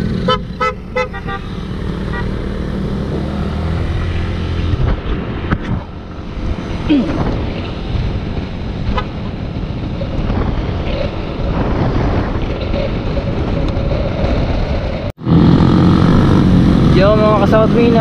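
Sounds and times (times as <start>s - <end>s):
wind buffeting microphone: 2.7s - 15.1s.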